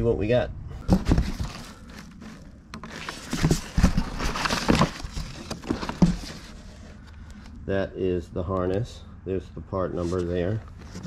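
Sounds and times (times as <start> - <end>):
cardboard and paper rustling: 0.8 - 7.6, 10.0 - 11.0.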